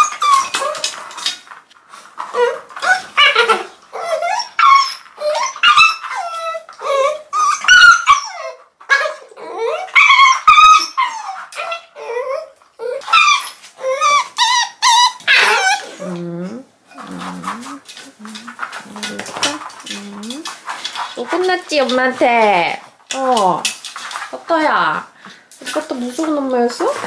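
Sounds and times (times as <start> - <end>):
puppies whining and yelping: 0.0 - 1.3, 2.1 - 21.1.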